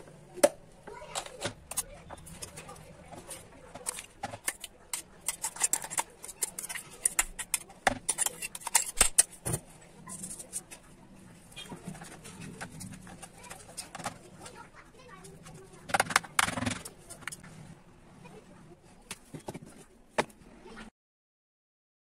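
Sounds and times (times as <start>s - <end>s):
metal spoon scraping a bowl: 3.4s - 9.4s, 10.1s - 10.8s.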